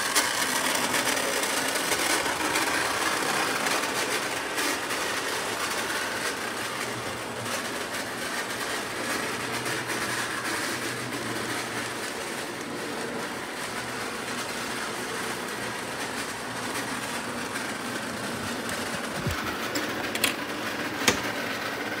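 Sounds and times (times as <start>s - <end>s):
low motor hum: 10.5s - 20.2s.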